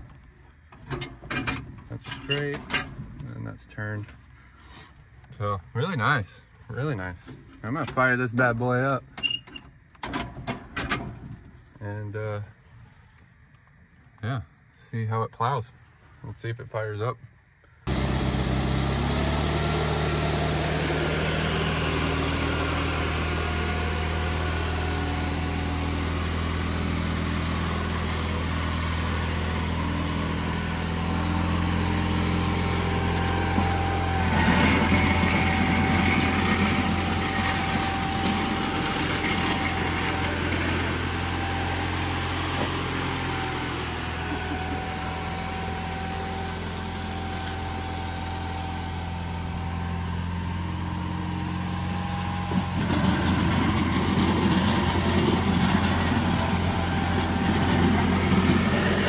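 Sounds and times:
tractor engine running: 17.9s - 59.0s.

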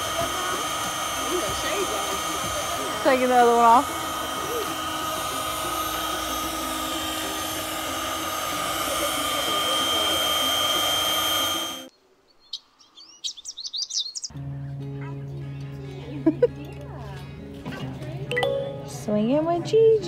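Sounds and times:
electric air blower humming: 0.0s - 11.9s
bird chirps: 12.3s - 14.3s.

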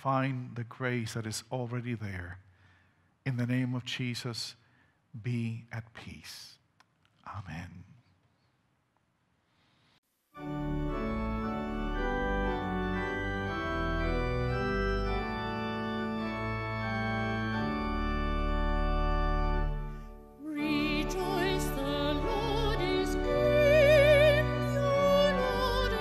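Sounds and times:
organ playing sustained chords: 10.4s - 26.0s
person singing with vibrato: 20.4s - 26.0s.

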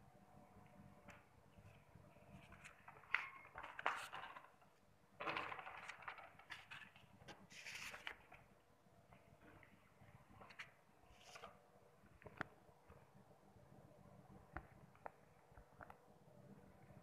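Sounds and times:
paper pages rustling: 1.1s - 8.6s, 10.4s - 11.6s.

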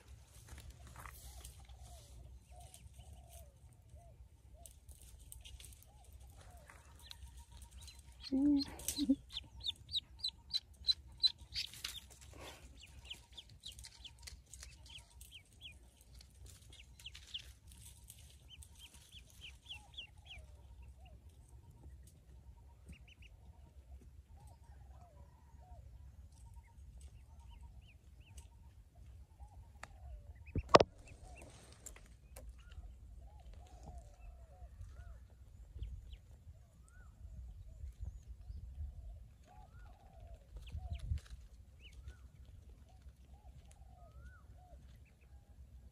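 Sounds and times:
ducklings peeping: 5.2s - 31.6s, 39.2s - 45.3s.

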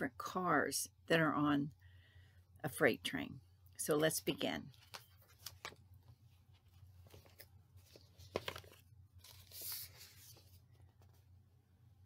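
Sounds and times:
book pages rustling: 4.7s - 11.4s.

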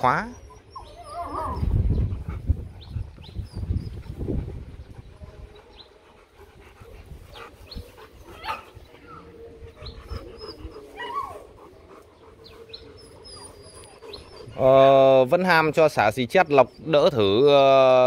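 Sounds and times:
dog whimper: 0.0s - 2.2s, 8.2s - 15.1s
dogs panting: 0.0s - 18.0s.

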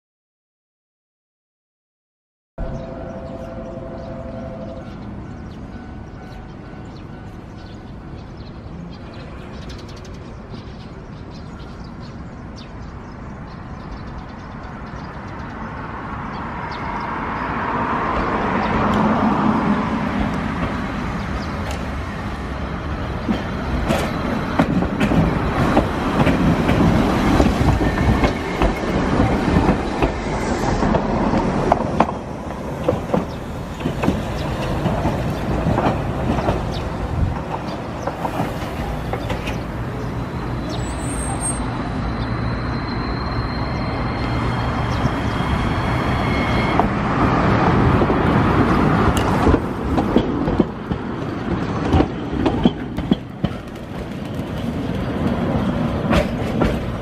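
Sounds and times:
tram motor and running noise: 2.6s - 57.0s
tram running slowly into stop: 2.6s - 57.0s
wheels clicking over rail joints: 48.0s - 57.0s.

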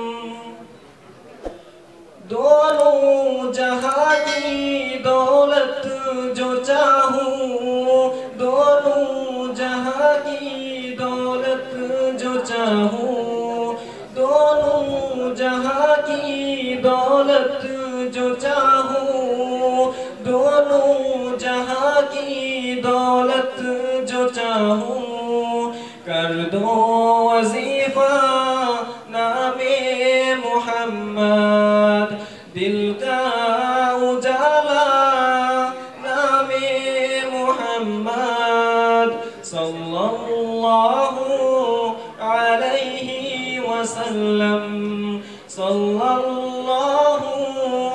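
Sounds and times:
man singing unaccompanied: 0.0s - 0.8s, 2.2s - 47.9s.

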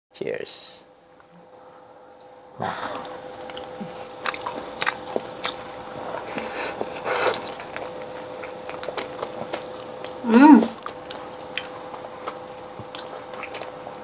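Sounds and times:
faint steady hum: 0.2s - 14.0s
biting and chewing food: 2.2s - 14.0s.

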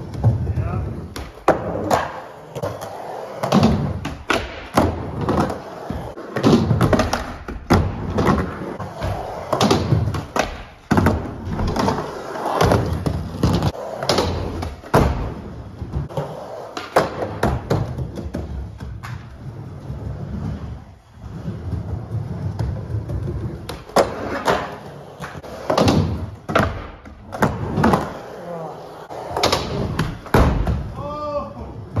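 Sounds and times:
skateboard wheels rumbling: 0.0s - 30.3s
skateboards clacking and landing: 0.0s - 31.0s.

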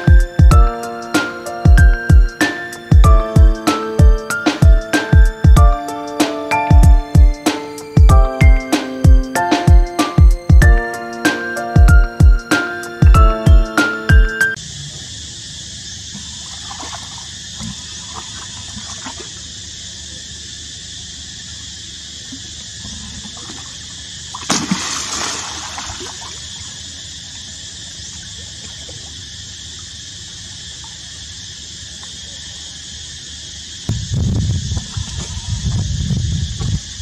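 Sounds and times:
water splash: 16.2s - 19.5s, 23.2s - 26.7s
water trickling: 22.4s - 31.3s.

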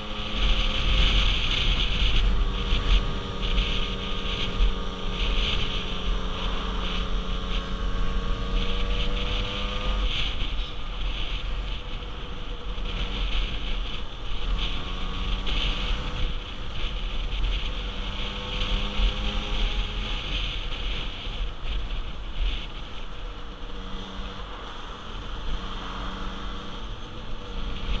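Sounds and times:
motorbike engine running: 0.0s - 28.0s
wind rush on microphone: 0.0s - 28.0s.

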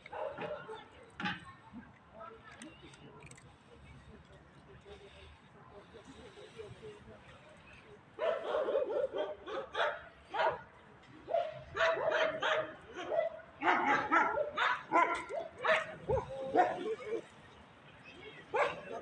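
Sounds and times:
dog barking: 0.1s - 0.9s, 8.2s - 10.6s, 11.3s - 17.1s, 18.5s - 19.0s.

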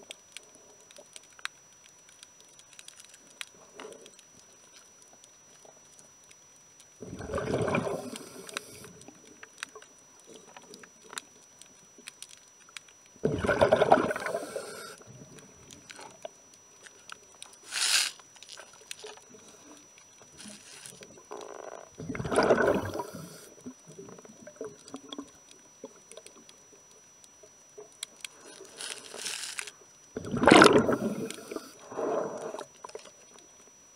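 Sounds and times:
faint clicks and scrapes: 0.0s - 33.8s
exhaled bubbles underwater: 7.0s - 8.8s, 13.2s - 15.6s, 21.4s - 25.4s, 30.2s - 33.0s
regulator inhalation hiss: 14.2s - 15.0s, 17.6s - 18.2s, 22.9s - 23.7s, 28.4s - 29.7s, 31.0s - 32.7s.

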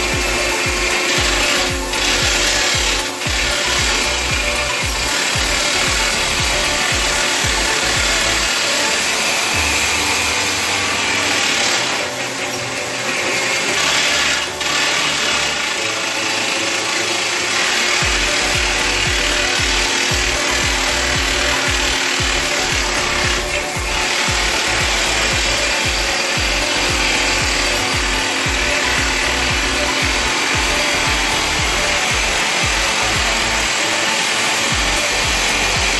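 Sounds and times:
rock drill grinding clatter: 0.0s - 35.9s
rapid low pounding: 18.0s - 33.8s.

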